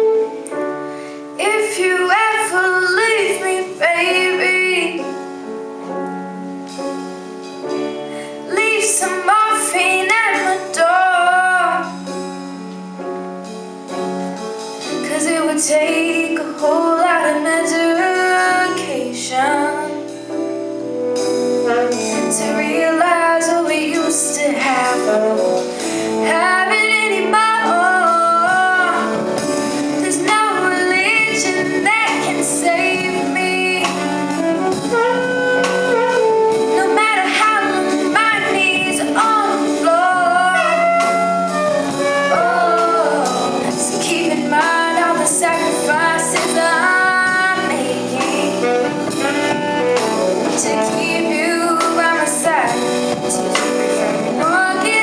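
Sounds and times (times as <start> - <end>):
saxophone: 0.0 - 1.3, 20.8 - 55.0
bass: 0.0 - 55.0
drums: 0.0 - 55.0
piano: 0.0 - 55.0
woman singing: 1.4 - 5.2, 7.9 - 12.1, 14.9 - 20.2, 21.7 - 49.6, 50.4 - 55.0
electric guitar: 24.9 - 55.0.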